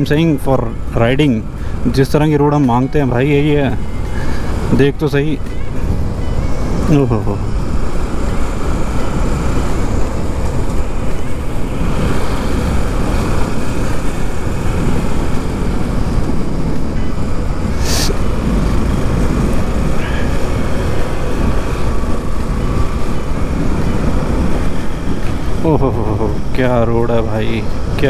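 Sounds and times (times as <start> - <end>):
motorcycle engine running: 0.0 - 28.0
wind rush on microphone: 0.0 - 28.0
brief hiss: 17.7 - 18.2.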